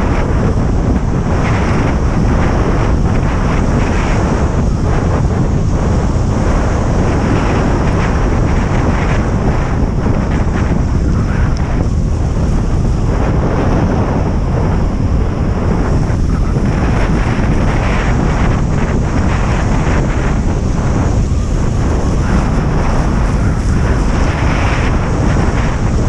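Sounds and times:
strong wind buffeting microphone: 0.0s - 26.0s.

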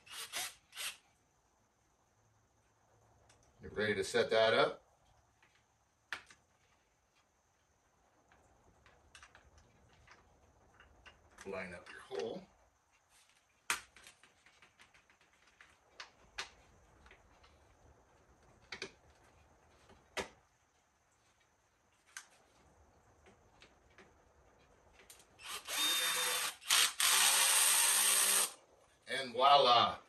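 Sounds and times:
cordless drill running: 0.0s - 1.0s, 25.4s - 28.6s
light clicks and taps of parts: 8.3s - 12.4s.

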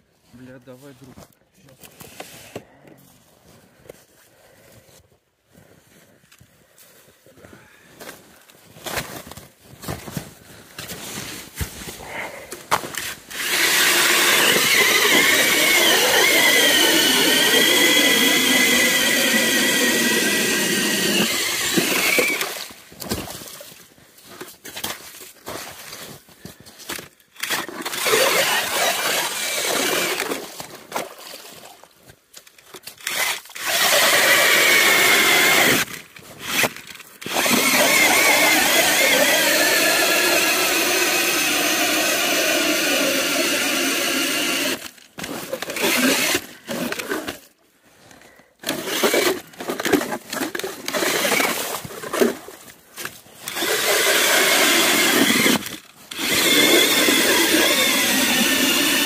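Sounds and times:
ice auger motor whining: 12.9s - 22.8s, 27.4s - 30.5s, 33.0s - 47.4s, 48.6s - 52.4s, 53.1s - 59.0s.

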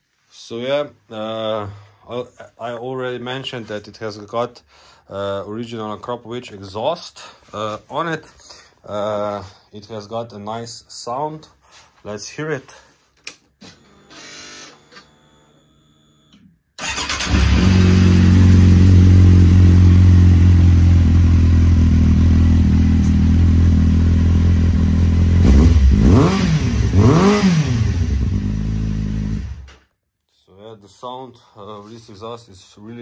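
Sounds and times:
motorcycle engine idling: 17.3s - 25.4s.

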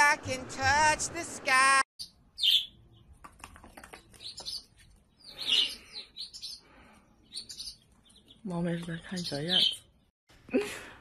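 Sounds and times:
chicks peeping: 4.0s - 9.8s.

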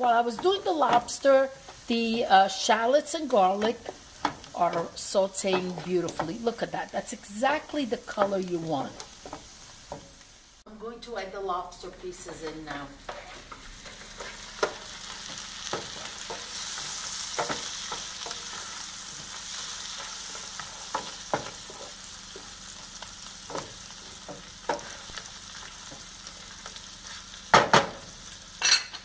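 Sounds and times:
food sizzling in butter: 0.0s - 10.6s, 11.4s - 29.0s
wooden spatula scraping a pan: 12.0s - 22.5s.

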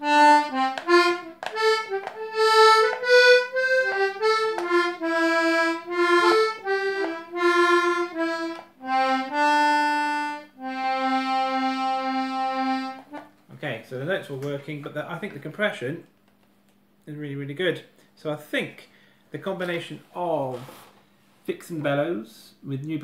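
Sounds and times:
button accordion playing: 0.0s - 13.4s.

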